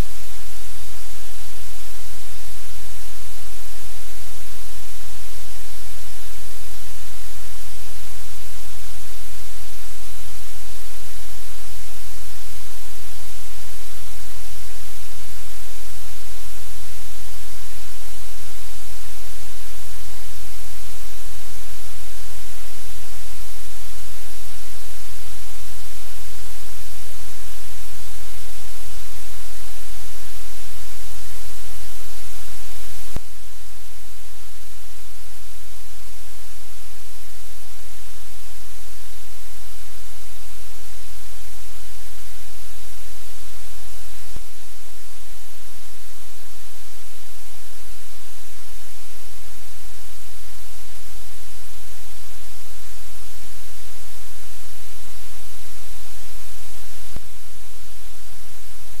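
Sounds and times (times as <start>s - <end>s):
low electrical hum: 0.0s - 59.0s
static hiss: 0.0s - 59.0s.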